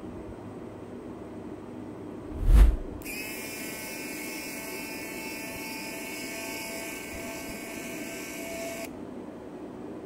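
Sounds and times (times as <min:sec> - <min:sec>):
electric screwdriver motor whine: 0:03.0 - 0:08.9.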